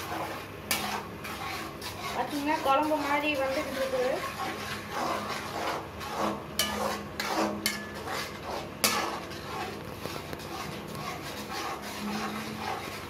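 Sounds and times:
spatula scraping a pan: 0.0s - 13.0s
spatula clacking against pan: 0.7s - 2.8s, 6.2s - 10.2s.

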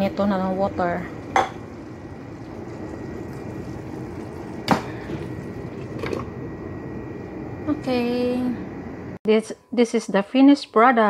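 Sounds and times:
pot simmering and bubbling: 0.0s - 7.6s.

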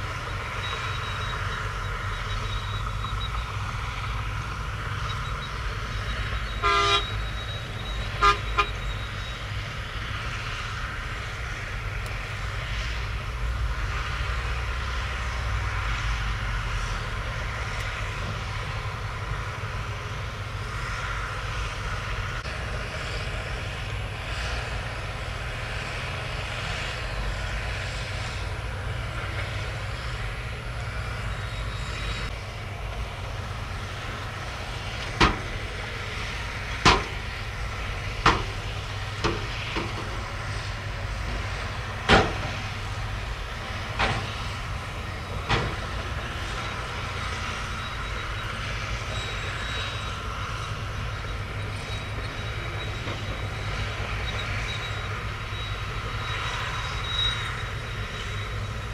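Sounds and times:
diesel engine running: 0.0s - 58.9s
sharp knocks of shifting load: 34.9s - 37.4s, 38.1s - 40.6s, 41.3s - 42.8s, 43.8s - 44.6s, 45.3s - 46.6s.

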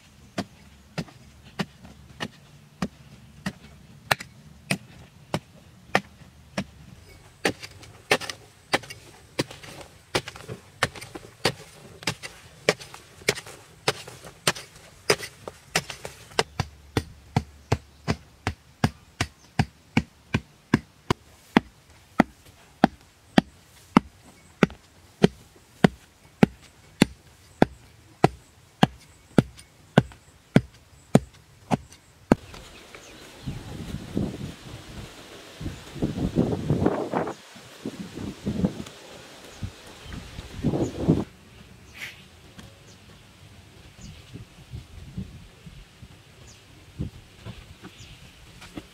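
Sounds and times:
metal hoe chopping into earth: 0.4s - 32.5s.

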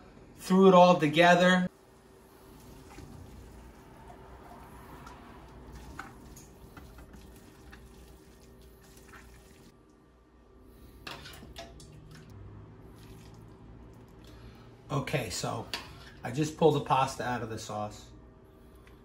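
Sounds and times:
wet spaghetti slithering: 2.2s - 9.8s, 12.1s - 14.6s
water dripping: 2.6s - 10.0s, 11.5s - 14.5s.

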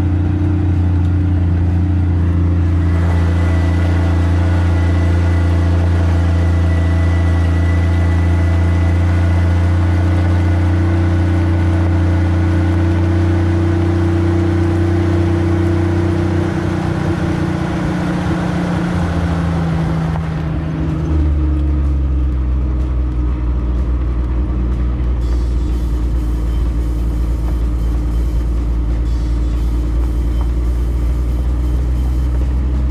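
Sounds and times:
car engine running: 0.0s - 32.9s
tyres on gravel: 19.0s - 32.9s.

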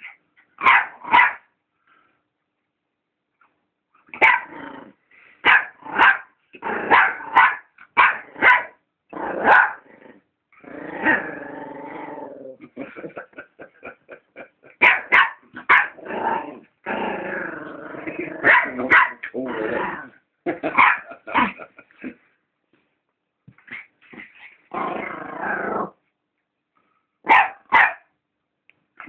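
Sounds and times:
dog barking: 0.6s - 1.5s, 4.2s - 4.5s, 5.4s - 8.8s, 9.4s - 9.8s, 14.8s - 16.0s, 18.4s - 19.2s, 20.8s - 21.6s, 27.2s - 28.1s
dog growling: 9.2s - 13.3s, 15.6s - 20.2s, 24.2s - 26.0s.

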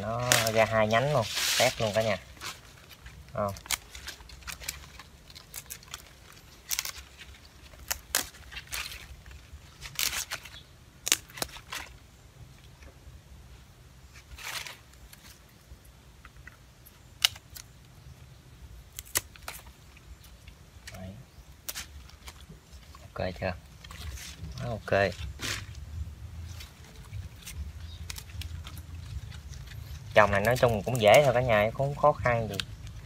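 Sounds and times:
roots tearing and soil crumbling: 0.0s - 12.8s, 14.0s - 15.6s, 16.4s - 17.8s, 18.8s - 33.0s
pruning shears snipping: 0.1s - 2.6s, 26.7s - 33.0s.

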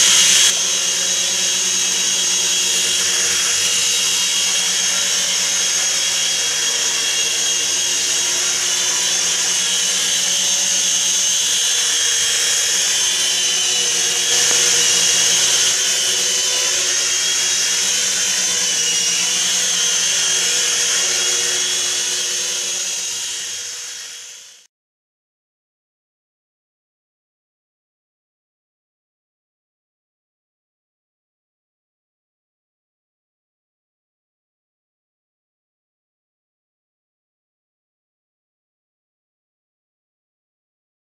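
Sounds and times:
toy helicopter motors whining: 0.0s - 24.7s.

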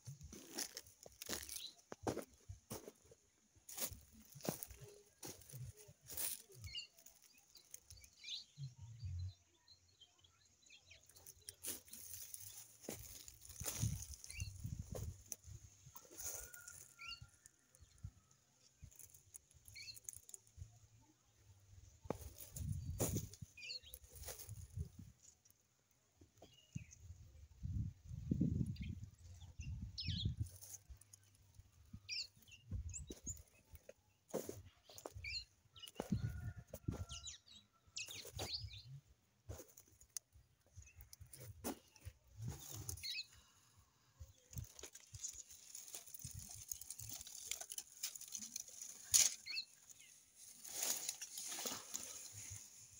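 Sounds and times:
footsteps and rustling: 0.0s - 8.0s, 11.2s - 17.0s, 22.0s - 25.1s, 32.6s - 37.4s, 39.5s - 43.4s, 44.5s - 52.9s
small bird chirping: 0.1s - 2.0s, 3.7s - 25.4s, 27.7s - 39.0s, 40.0s - 52.6s.

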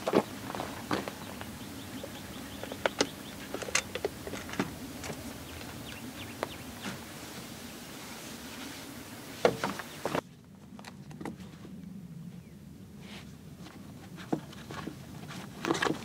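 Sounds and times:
footsteps on gravel: 0.0s - 7.5s
steady background hiss: 0.0s - 10.6s.

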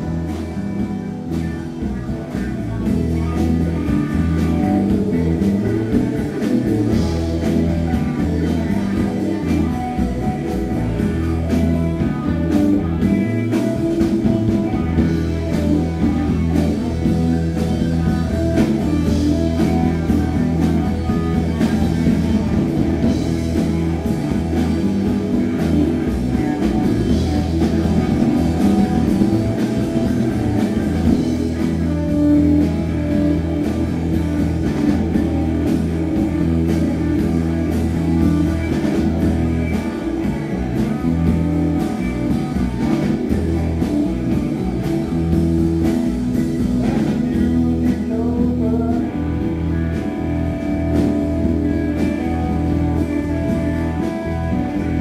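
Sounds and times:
bass guitar: 0.0s - 55.0s
drum kit: 0.0s - 55.0s
electric guitar riff: 0.0s - 55.0s.

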